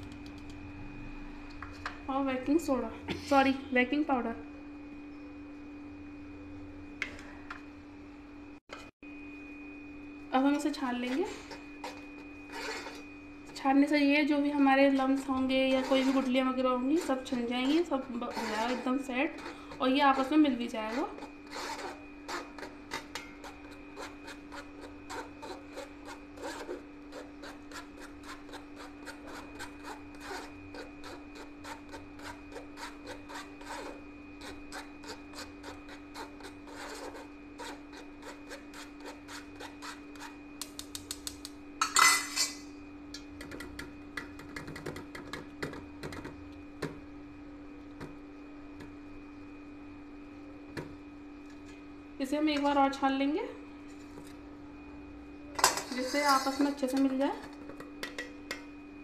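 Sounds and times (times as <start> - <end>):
faint hum: 0.0 - 59.0
spoon scraping metal sieve: 10.9 - 13.1, 14.8 - 37.2, 55.7 - 57.2.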